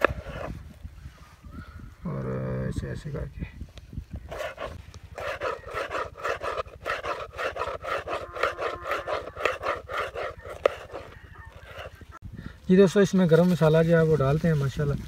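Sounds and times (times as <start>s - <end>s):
knife chopping on plastic plate: 5.2s - 11.1s.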